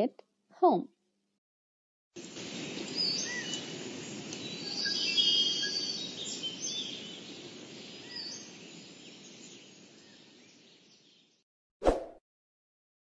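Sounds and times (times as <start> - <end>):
steady background hiss: 2.2 - 10.8
birds chirping and whistling: 2.2 - 11.2.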